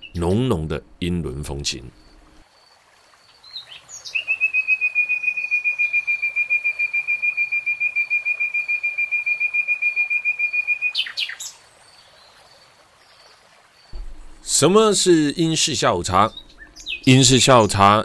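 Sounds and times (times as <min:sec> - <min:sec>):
bird singing high trill: 0:03.6 - 0:11.5, 0:16.1 - 0:17.8.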